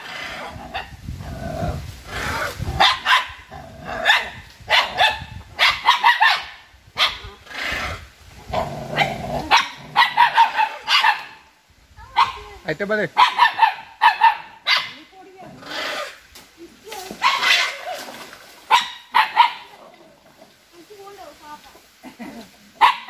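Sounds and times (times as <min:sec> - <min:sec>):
dog barking: 0:02.8 - 0:03.4, 0:04.0 - 0:07.3, 0:09.0 - 0:11.4, 0:12.1 - 0:12.5, 0:13.2 - 0:15.0, 0:17.2 - 0:17.8, 0:18.7 - 0:19.7, 0:22.8 - 0:23.0.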